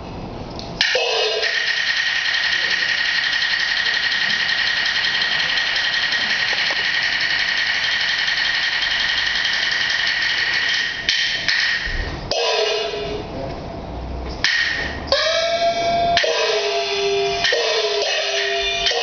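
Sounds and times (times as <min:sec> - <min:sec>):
cymbals and gongs clashing: 0:00.8 - 0:13.3, 0:14.4 - 0:19.0
sharp gong strikes ringing: 0:12.3 - 0:13.3, 0:14.8 - 0:19.0.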